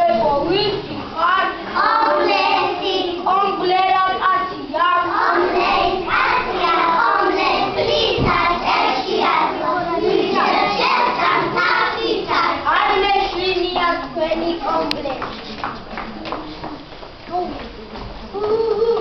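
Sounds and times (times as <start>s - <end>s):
children singing: 1.7s - 3.3s, 4.4s - 13.4s
dull low thump: 8.1s - 8.6s.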